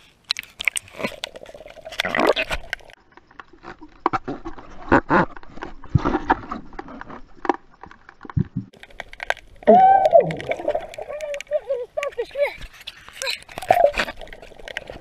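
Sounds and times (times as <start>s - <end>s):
underwater bubbling and gurgling: 0.0s - 12.2s, 12.8s - 15.0s
underwater knocks and clicks: 0.4s - 12.2s
water splash: 9.5s - 11.4s.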